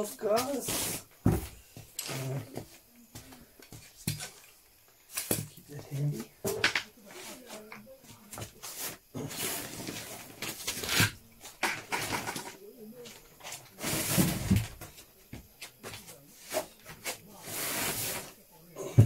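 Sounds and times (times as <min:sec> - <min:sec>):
plastic boxes being shifted: 0:08.4 - 0:12.6, 0:13.4 - 0:15.0.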